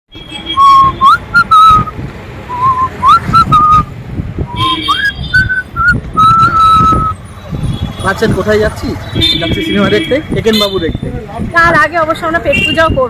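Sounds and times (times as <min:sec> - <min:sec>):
man whistling a tune: 0:00.6 - 0:01.9, 0:02.5 - 0:03.9, 0:04.5 - 0:07.2.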